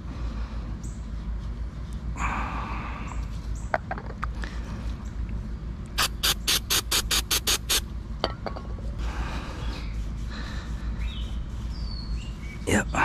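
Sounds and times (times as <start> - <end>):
aerosol spray squirts: 6.0 - 7.8.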